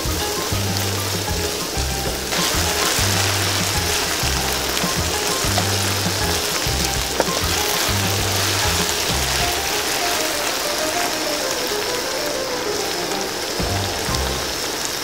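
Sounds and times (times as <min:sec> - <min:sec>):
background music with bass line: 0:00.0 - 0:10.1, 0:13.6 - 0:14.6
hot oil sizzling: 0:00.0 - 0:15.0.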